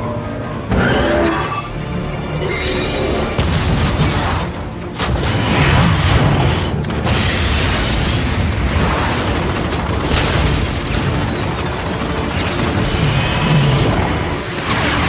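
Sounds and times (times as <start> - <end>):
explosions and heavy booms: 3.3 - 15.0.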